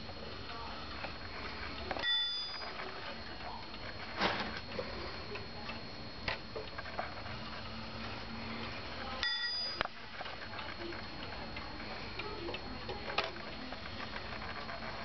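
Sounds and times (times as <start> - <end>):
short ringing tone: 2.0 - 2.7, 9.2 - 9.8.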